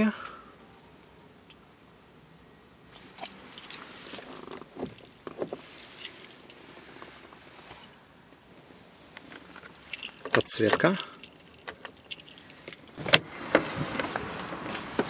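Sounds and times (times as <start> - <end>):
light clicks rattles and scuffs: 2.9 - 8.0, 9.1 - 13.0
keys jangling: 3.0 - 6.6, 9.5 - 13.0.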